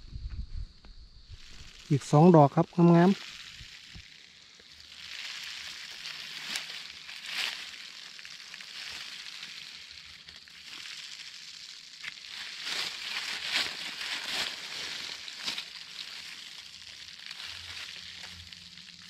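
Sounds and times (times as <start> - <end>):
steady hiss: 0.0 - 19.0
dry leaves rustling and crunching: 1.4 - 19.0.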